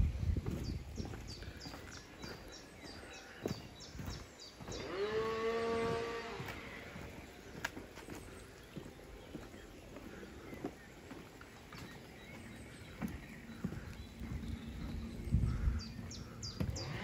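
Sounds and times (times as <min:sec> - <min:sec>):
bird chirping: 0:00.0 - 0:17.0.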